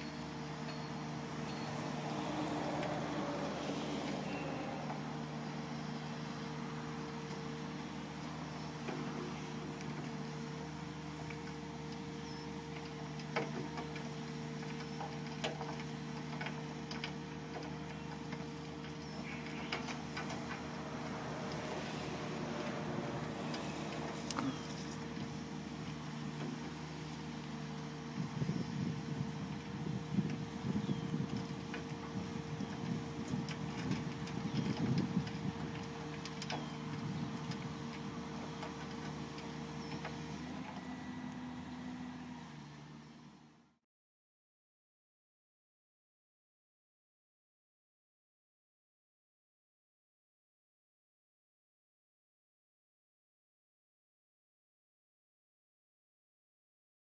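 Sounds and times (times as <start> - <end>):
excavator engine and hydraulics: 0.0 - 43.8.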